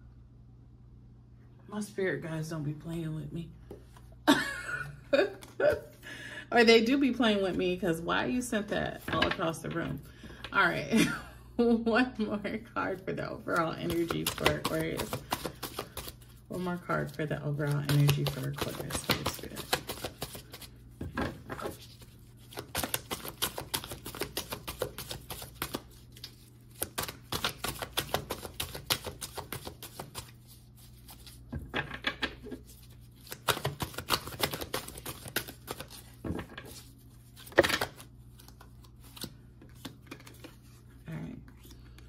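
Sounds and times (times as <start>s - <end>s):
cards being shuffled: 13.4s - 42.0s.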